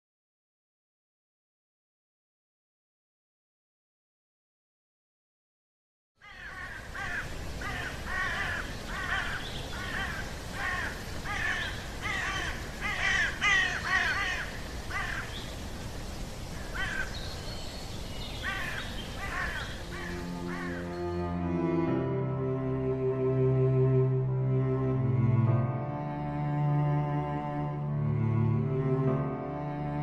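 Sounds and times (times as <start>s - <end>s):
crows cawing: 6.2s - 15.4s, 16.6s - 17.2s, 18.4s - 20.9s.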